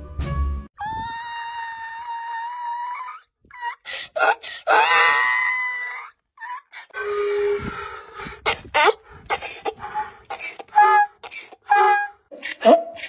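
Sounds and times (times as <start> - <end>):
donkey braying: 8.4 - 13.0.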